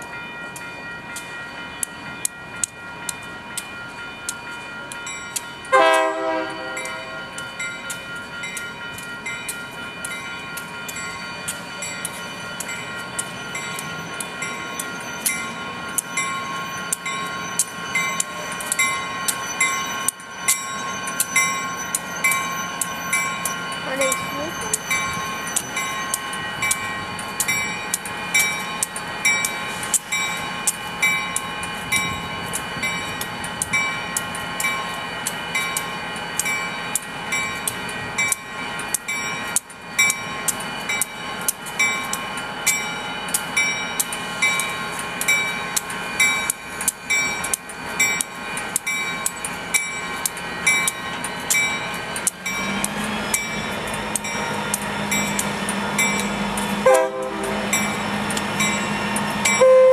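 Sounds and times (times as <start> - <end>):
crossing bell ringing: 0.0 - 59.9
diesel locomotives idling: 0.5 - 59.9.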